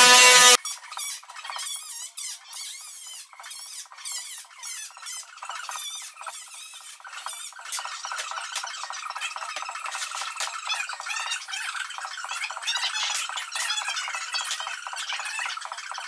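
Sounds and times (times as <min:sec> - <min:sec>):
power tool whine: 0:00.0 - 0:00.6
high-pitched squeaky chatter: 0:00.0 - 0:16.0.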